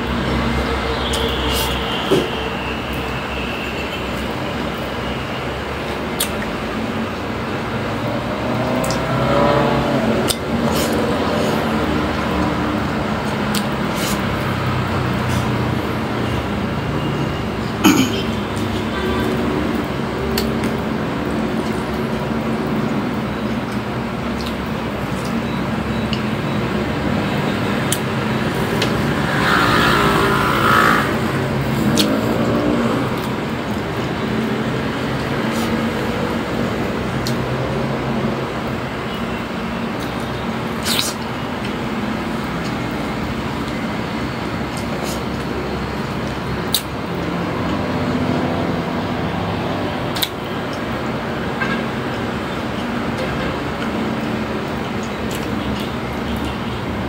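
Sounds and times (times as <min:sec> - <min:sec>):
road traffic hum: 0:00.0 - 0:57.0
vehicle passing by: 0:07.5 - 0:17.7, 0:26.4 - 0:38.8, 0:42.1 - 0:50.3.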